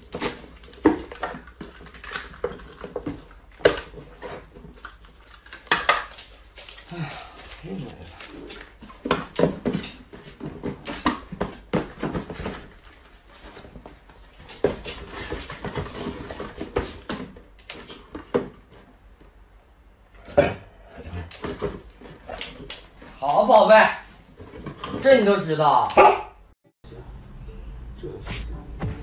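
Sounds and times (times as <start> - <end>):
cardboard boxes knocking: 8.8 - 18.9.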